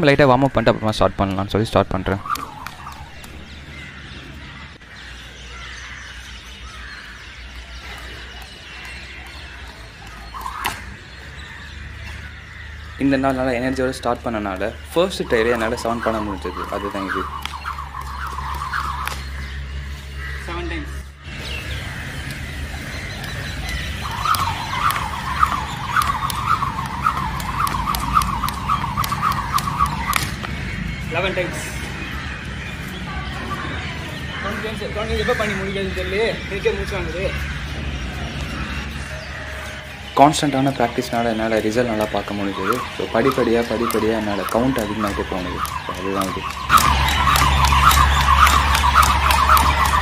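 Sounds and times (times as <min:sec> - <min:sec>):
birds chirping: 0:00.0 - 0:50.0
rope ticking on concrete: 0:01.2 - 0:03.7, 0:07.0 - 0:11.0, 0:13.0 - 0:19.7, 0:21.6 - 0:32.0, 0:40.2 - 0:50.0
skipping rope whirring: 0:02.2 - 0:03.7, 0:07.5 - 0:11.0, 0:15.4 - 0:19.6, 0:21.7 - 0:30.6, 0:41.5 - 0:50.0.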